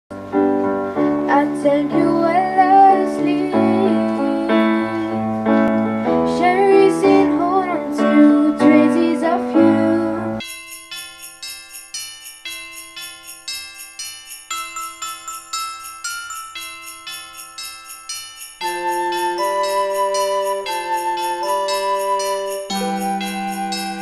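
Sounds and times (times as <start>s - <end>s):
electronic keyboard piano: 0.1s - 10.5s, 14.0s - 24.0s
girl singing: 1.2s - 5.2s, 6.2s - 10.4s.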